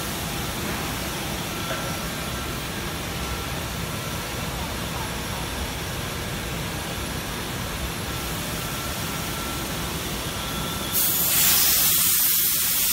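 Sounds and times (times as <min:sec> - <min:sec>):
loud high-pitched hiss: 0:10.9 - 0:12.9.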